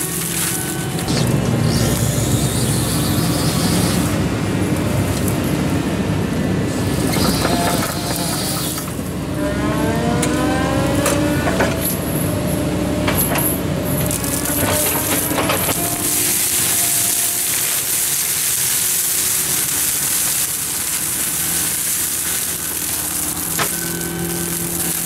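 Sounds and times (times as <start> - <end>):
excavator diesel engine running: 0.0 - 25.0
rising whine: 7.4 - 13.0.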